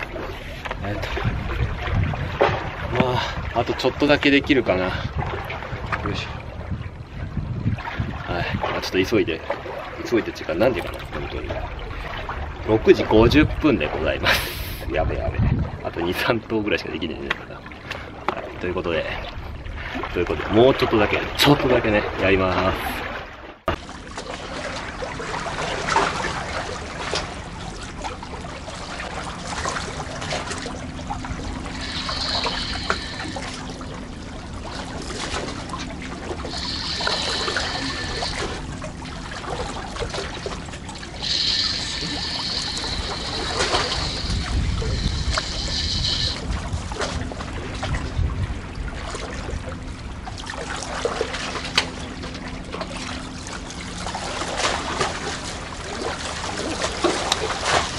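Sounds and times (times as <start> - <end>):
seawater lapping and trickling: 0.0 - 57.9
fishing reel whirring: 31.4 - 33.9, 36.3 - 38.7, 41.0 - 46.6.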